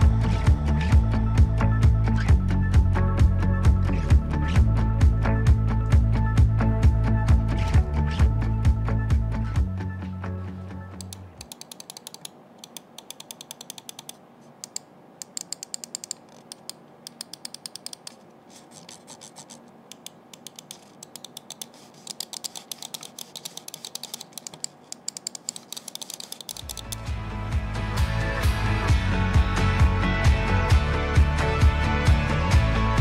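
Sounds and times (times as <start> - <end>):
mouse clicking rapidly: 11.0 - 27.0.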